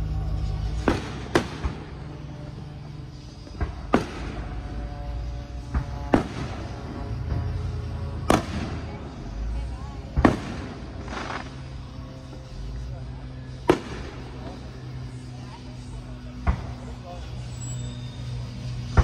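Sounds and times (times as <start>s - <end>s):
firework shells bursting: 3.5s - 4.6s.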